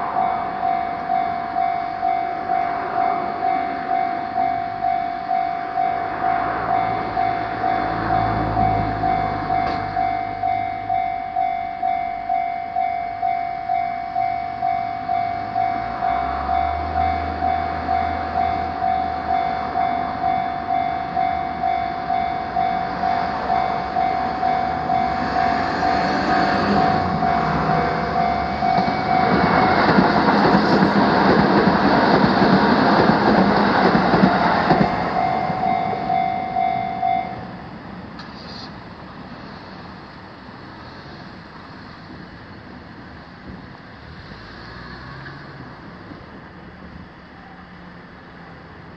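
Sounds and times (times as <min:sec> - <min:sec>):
faint street noise: 0:00.0 - 0:48.9
train passing: 0:00.0 - 0:48.9
level crossing bell ringing: 0:00.2 - 0:26.0, 0:26.7 - 0:29.9, 0:34.7 - 0:37.4.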